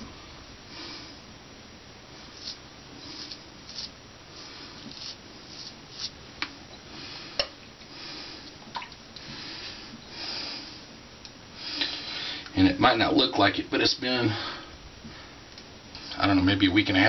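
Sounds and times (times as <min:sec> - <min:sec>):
razor scraping stubble: 0:02.3 - 0:04.0, 0:04.8 - 0:06.2.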